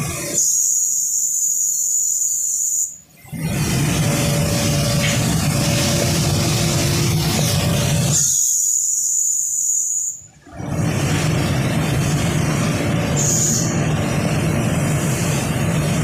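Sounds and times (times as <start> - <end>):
loud high hiss: 1.0 - 16.0
broad rushing noise: 3.4 - 8.2, 10.5 - 16.0.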